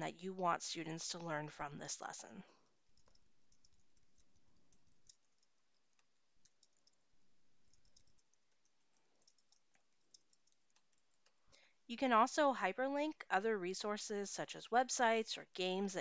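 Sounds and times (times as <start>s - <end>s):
keyboard typing: 3.0s - 11.3s.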